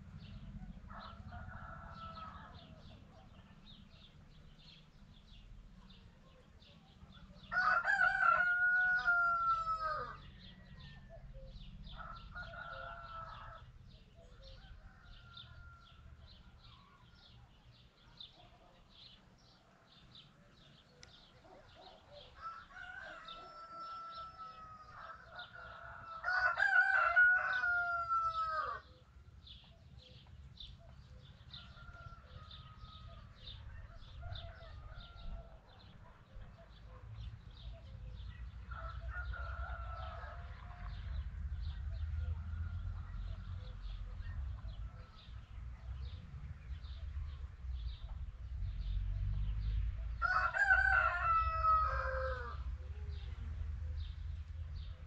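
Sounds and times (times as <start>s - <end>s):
distant rooster crowing: 0.5s - 3.2s, 7.5s - 17.3s, 21.7s - 28.9s, 31.3s - 36.0s, 37.6s - 43.9s, 50.2s - 53.2s
rooster crowing loudly: 7.5s - 10.2s, 22.4s - 28.8s, 50.2s - 52.6s.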